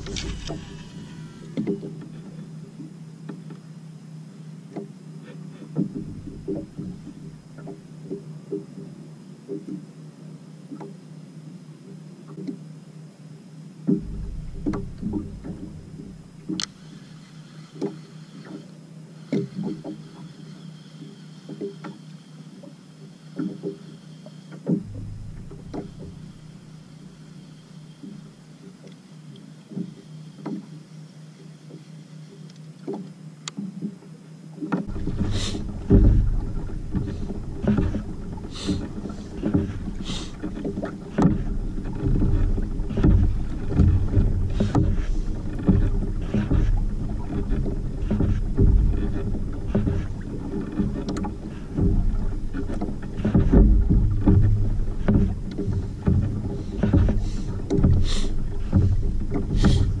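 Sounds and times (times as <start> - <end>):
wind rumbling on microphone: 0.0 - 2.2, 13.9 - 16.9, 24.7 - 27.2, 34.8 - 60.0
water splashing against kayak hull: 0.0 - 3.8, 4.6 - 9.9, 13.8 - 20.4, 21.0 - 30.8, 31.6 - 60.0.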